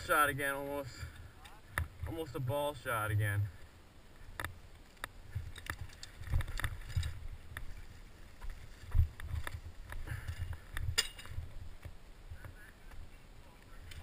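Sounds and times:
mountain bike rattling: 4.3s - 12.0s.

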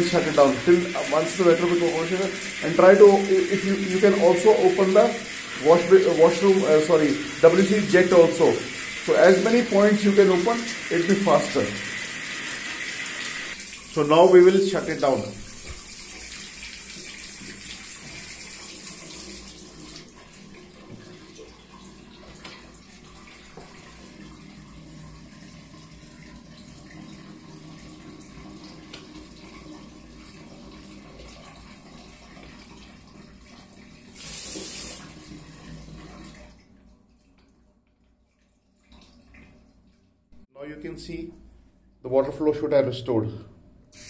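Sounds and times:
water spraying from valve: 0.0s - 20.4s, 34.1s - 36.0s.

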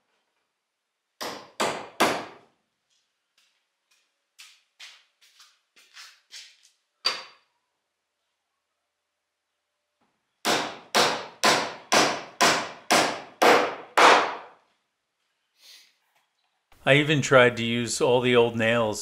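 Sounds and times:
hammer driving nail into wood: 1.2s - 2.4s, 10.4s - 14.6s.

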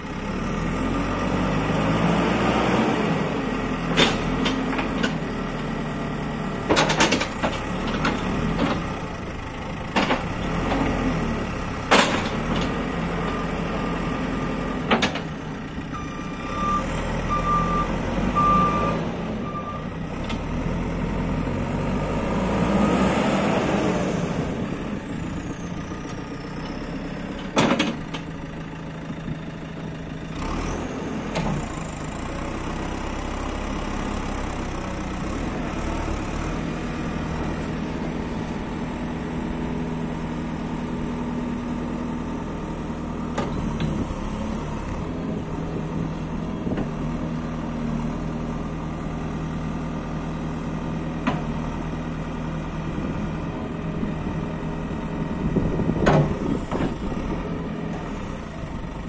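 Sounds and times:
diesel engine revving: 0.0s - 59.0s
reversing alarm beeps: 15.9s - 19.9s.

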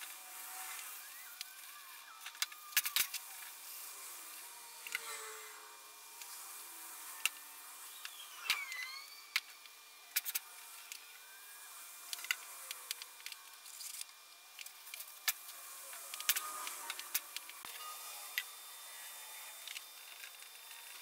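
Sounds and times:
brief squeak: 8.1s - 9.3s.

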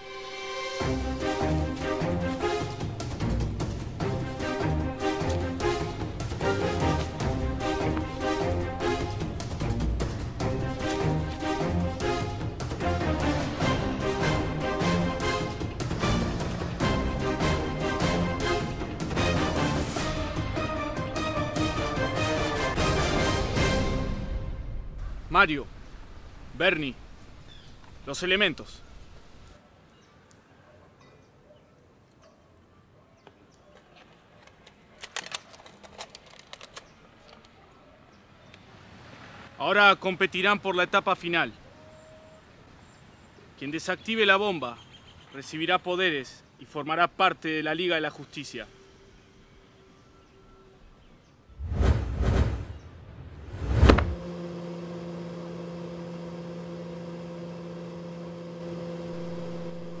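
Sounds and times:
brief whoosh: 51.6s - 54.3s
electric hum: 53.5s - 60.0s.

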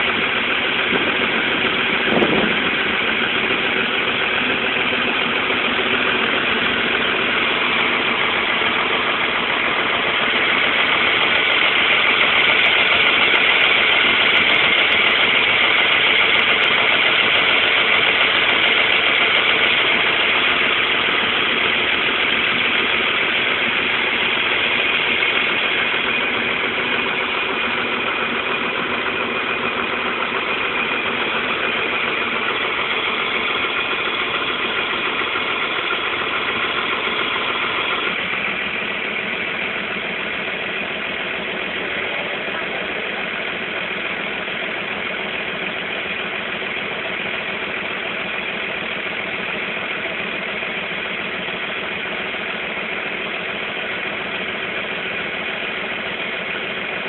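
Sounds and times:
diesel bus engine running: 0.0s - 57.0s.

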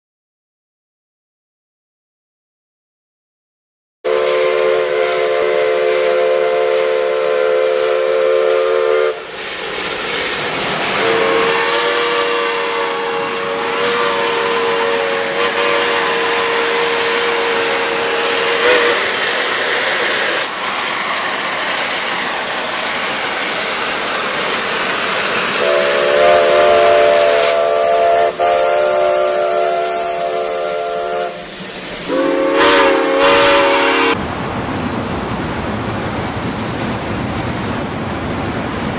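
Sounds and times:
steam whistle blasts: 4.1s - 9.3s, 11.0s - 20.4s, 25.6s - 34.2s
steam venting hiss: 4.1s - 34.2s.

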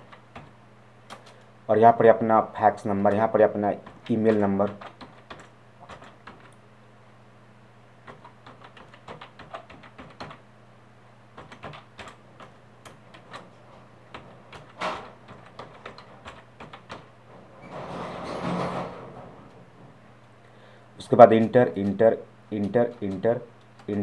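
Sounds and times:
computer keyboard typing: 0.0s - 1.4s, 3.1s - 6.6s, 8.0s - 10.4s, 11.4s - 13.5s, 14.1s - 17.1s, 21.4s - 24.0s
low steady hum: 0.0s - 24.0s.

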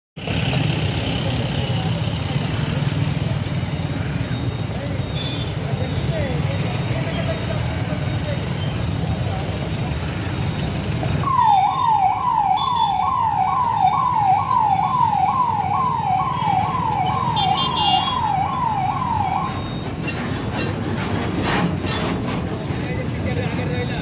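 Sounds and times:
heavy trucks rumbling: 0.2s - 12.5s, 13.2s - 24.0s
electronic vehicle siren: 11.2s - 20.0s.

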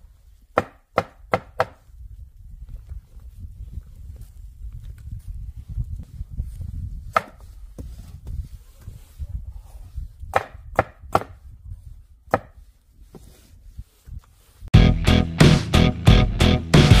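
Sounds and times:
knife chopping on wooden board: 7.1s - 7.4s, 10.3s - 11.4s, 12.3s - 12.6s.

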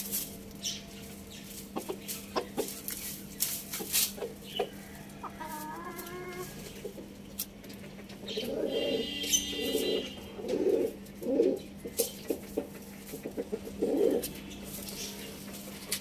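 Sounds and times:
beaks pecking in straw: 0.0s - 8.6s, 9.3s - 16.0s
chickens clucking softly: 1.7s - 3.1s, 3.7s - 8.8s, 10.4s - 16.0s.

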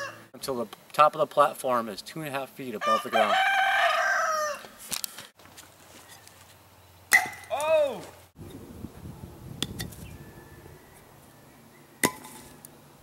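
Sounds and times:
rooster crowing: 0.0s - 0.3s, 2.8s - 4.8s
wooden stick striking with crack: 7.1s - 7.8s, 12.0s - 12.5s
person shouting: 7.5s - 8.1s.

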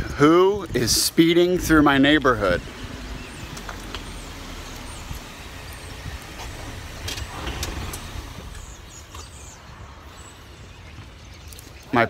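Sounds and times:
car engine idling: 1.4s - 10.7s.

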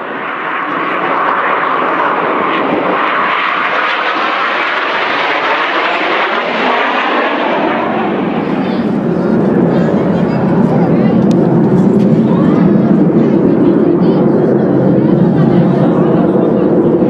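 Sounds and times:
aircraft engines droning overhead: 0.0s - 17.0s.

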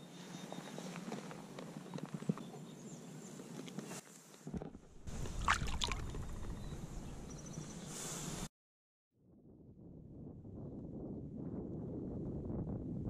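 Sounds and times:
water sloshing against kayak: 5.1s - 6.4s
fish splashing: 5.2s - 6.3s.

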